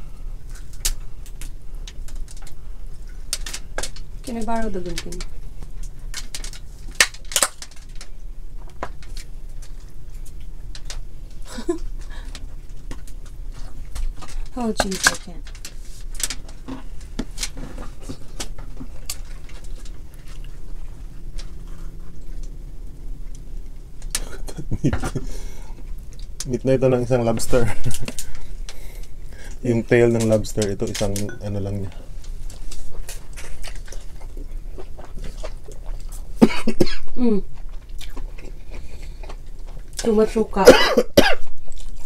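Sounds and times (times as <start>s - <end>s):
shells cracking and snapping: 0.5s - 4.1s, 4.8s - 26.5s
chewing and lip-smacking: 16.4s - 26.4s, 32.7s - 36.4s, 37.4s - 40.0s, 41.5s - 42.0s
person coughing: 36.4s - 37.4s, 40.6s - 41.5s.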